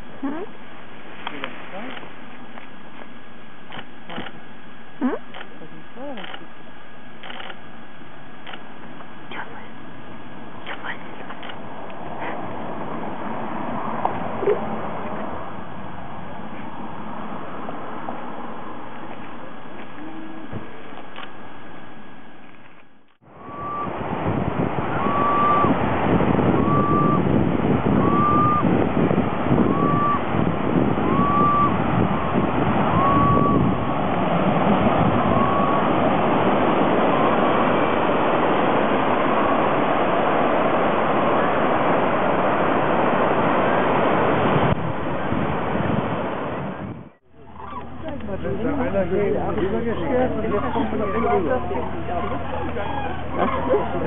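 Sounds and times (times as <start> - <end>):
wind and surf rushing: 0.0 - 5.0, 6.7 - 22.1, 23.2 - 54.0
bird calling: 23.4 - 24.0, 24.8 - 25.8, 26.4 - 27.3, 27.9 - 28.7, 29.6 - 34.0, 34.9 - 36.0, 47.3 - 48.2, 50.0 - 54.0.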